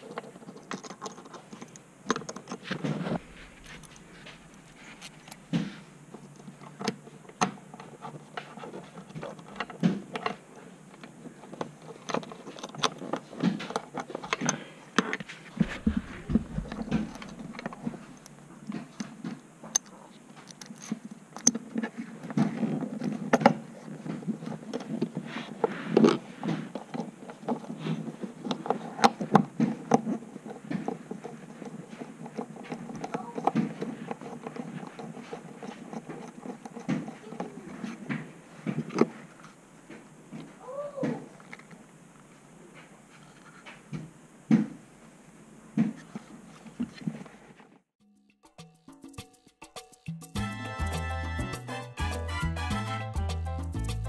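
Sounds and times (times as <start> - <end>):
fabric rustling: 15.2 - 18.2.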